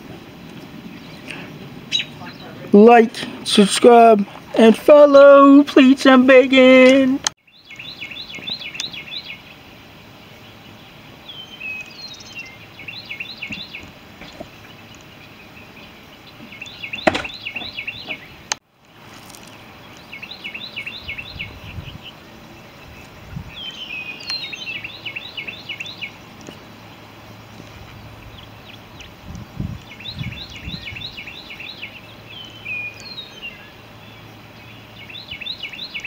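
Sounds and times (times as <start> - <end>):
outdoor background: 0.0 - 36.0
songbird chirping: 0.0 - 36.0
sharp knock: 17.0 - 17.7.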